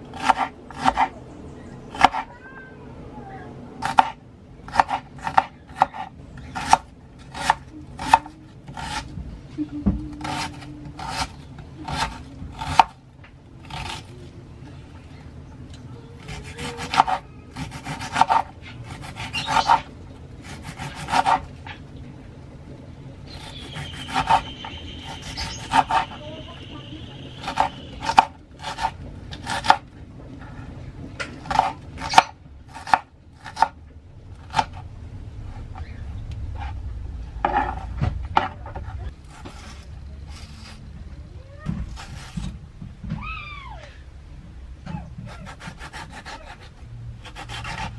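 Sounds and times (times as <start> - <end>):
knife chopping on wooden board: 0.1 - 1.1, 16.3 - 19.8.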